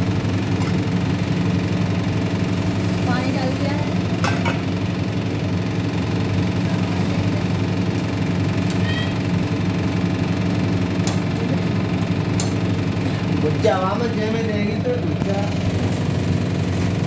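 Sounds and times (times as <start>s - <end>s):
steady machine hum: 0.0s - 17.0s.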